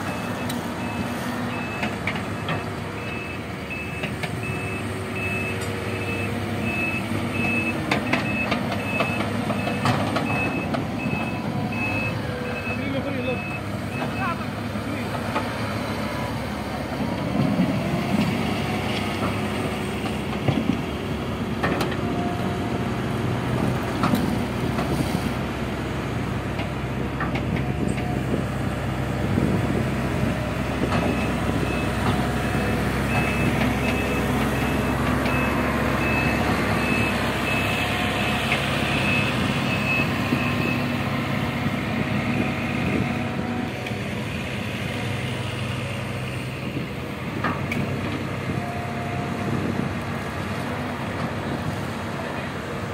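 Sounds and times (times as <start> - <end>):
reversing alarm beeping: 0.0 - 14.4, 33.1 - 41.0
diesel engines running: 0.0 - 52.9.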